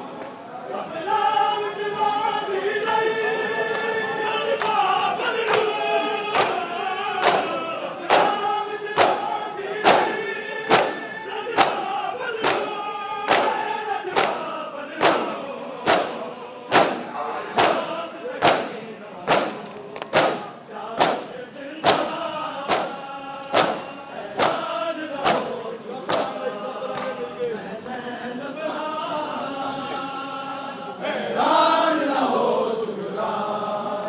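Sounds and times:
crowd of men chanting: 0.6s - 34.0s
hands striking chests: 7.2s - 8.4s, 9.0s - 11.0s, 11.6s - 14.4s, 15.9s - 25.5s.

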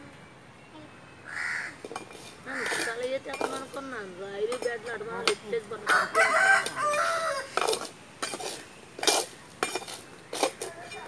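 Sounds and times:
rooster crowing: 5.8s - 7.6s.

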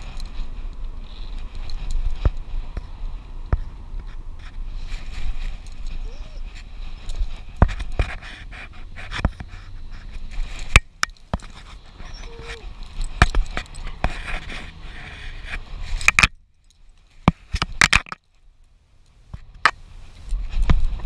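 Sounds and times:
low vehicle rumble: 0.0s - 21.0s
clicks and rubbing on camera housing: 3.5s - 14.8s, 15.4s - 16.4s, 17.2s - 18.3s.

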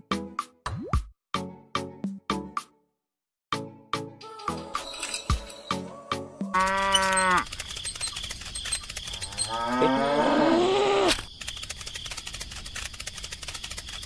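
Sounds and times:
cow mooing: 6.5s - 7.5s, 9.2s - 11.1s
fast even clicking: 6.7s - 9.7s, 11.1s - 14.0s.

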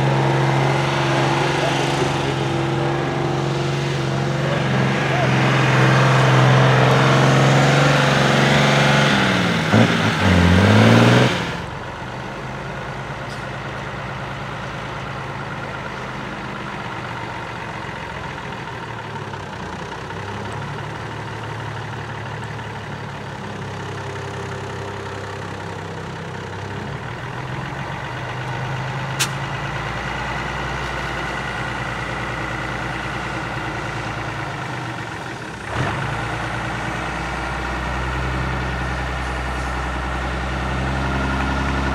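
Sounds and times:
truck engine running at low revs: 0.0s - 41.9s
truck engine working hard: 0.0s - 41.9s
short click: 29.2s - 29.4s.

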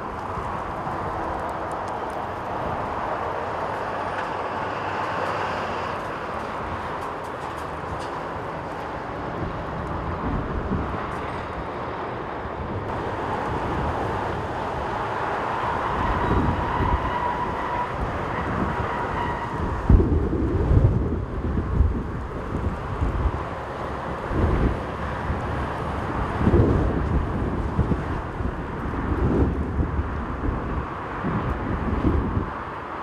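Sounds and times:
wind buffeting microphone: 0.0s - 33.0s.

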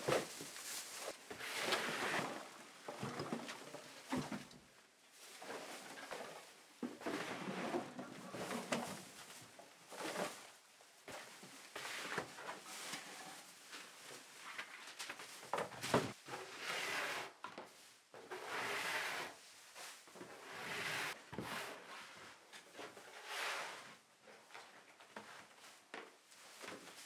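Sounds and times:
dustpan scraping on wooden floor: 0.1s - 3.3s, 16.2s - 17.4s, 18.2s - 24.0s.

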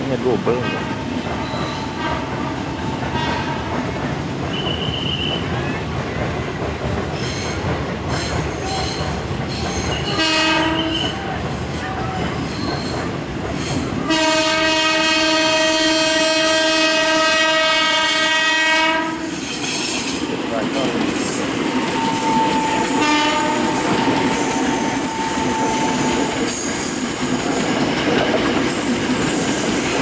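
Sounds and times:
train rumble and wheel noise: 0.0s - 30.0s
electric train horn blasts: 4.5s - 5.4s, 10.1s - 11.2s, 14.0s - 19.3s, 21.8s - 26.4s.

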